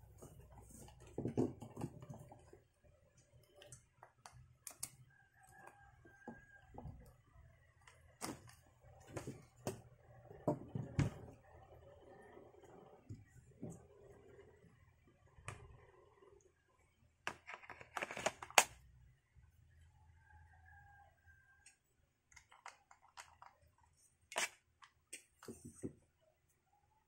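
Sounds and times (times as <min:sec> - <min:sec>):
hands handling plastic parts: 0:17.3 - 0:18.8, 0:22.3 - 0:26.0.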